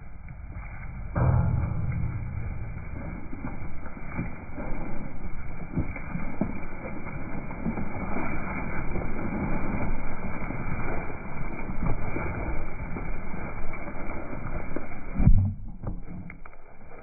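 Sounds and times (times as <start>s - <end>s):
hooves treading turf: 0.0s - 17.0s
heavy thump: 0.3s - 4.4s
sheep tearing and chewing grass: 4.0s - 15.2s.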